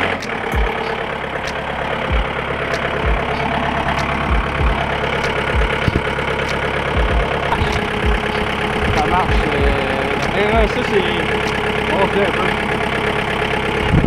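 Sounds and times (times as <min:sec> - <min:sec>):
short low thumps: 0:00.0 - 0:10.8
tractor diesel engine running: 0:00.0 - 0:14.0.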